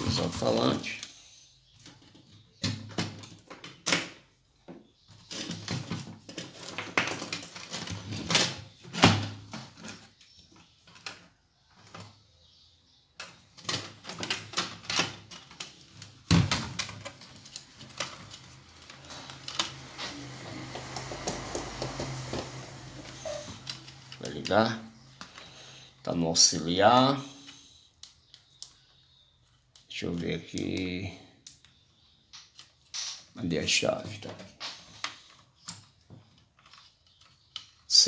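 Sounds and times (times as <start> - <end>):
hard plastic parts clicking and rattling: 0.0 - 12.2, 13.2 - 25.6, 32.3 - 38.0.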